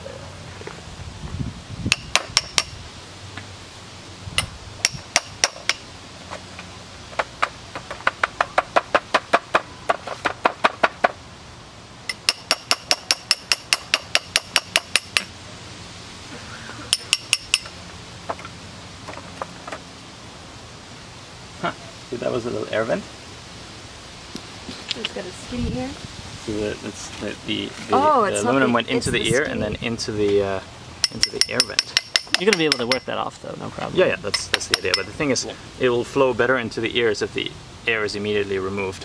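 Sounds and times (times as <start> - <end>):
hammer striking ringing chisel: 1.9 - 2.7, 4.4 - 5.8, 12.1 - 15.3, 16.9 - 17.8, 31.0 - 33.1, 34.4 - 35.2.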